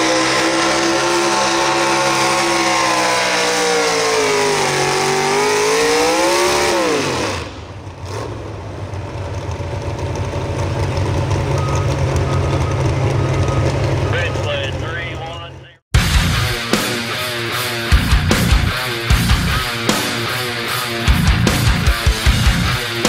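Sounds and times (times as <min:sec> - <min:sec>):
truck engine screaming at full throttle: 0:00.0 - 0:23.0
rough lumpy engine idle: 0:08.6 - 0:15.3.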